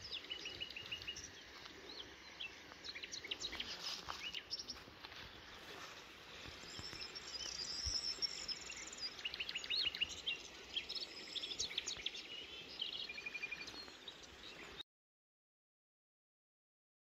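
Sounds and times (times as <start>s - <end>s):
faint background noise: 0.0s - 14.8s
songbirds singing and chirping: 0.0s - 14.8s.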